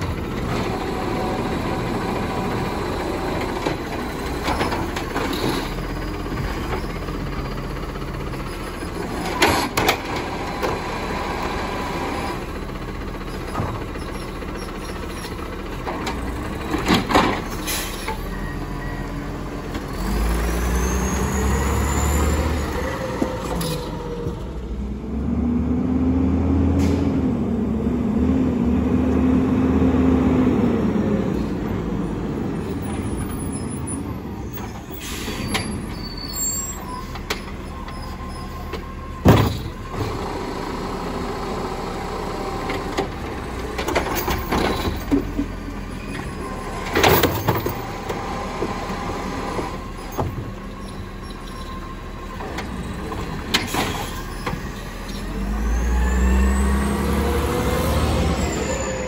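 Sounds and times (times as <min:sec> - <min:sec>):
air brakes hissing: 0:17.5 - 0:18.2, 0:34.8 - 0:36.9
truck engine revving: 0:19.1 - 0:34.2, 0:52.6 - 0:59.0.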